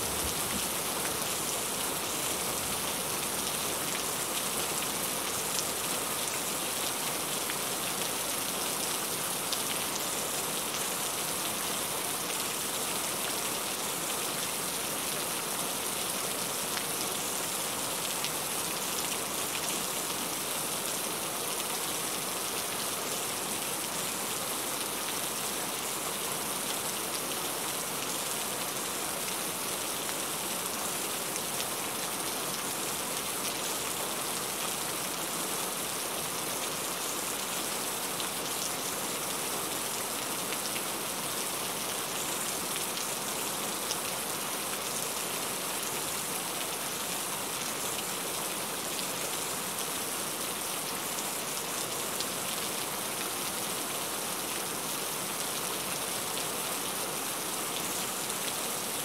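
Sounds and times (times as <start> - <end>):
heavy rain: 0.0 - 59.0.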